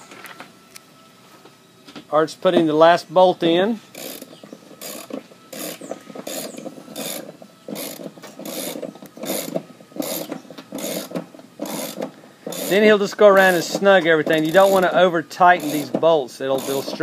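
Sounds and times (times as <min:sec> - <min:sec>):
socket ratchet clicking: 0:04.0 - 0:12.8.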